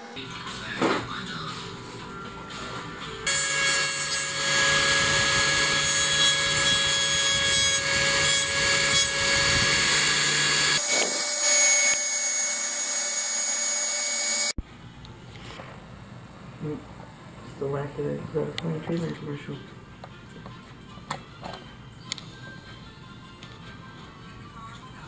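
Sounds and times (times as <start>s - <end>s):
rotary tool motor whine: 3.3s - 14.6s.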